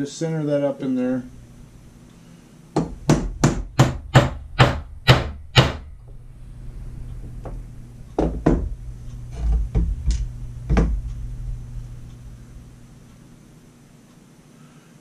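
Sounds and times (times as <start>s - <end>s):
hammer striking metal punch: 2.8s - 5.9s.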